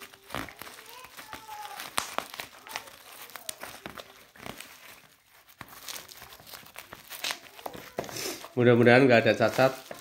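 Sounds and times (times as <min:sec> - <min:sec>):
plastic wrapping crinkling: 0:00.0 - 0:10.0.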